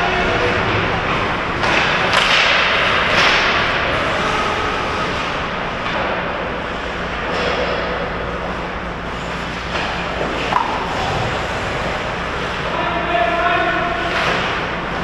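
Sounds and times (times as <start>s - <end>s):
stick and puck thuds: 1.5s - 3.7s, 9.7s - 10.9s.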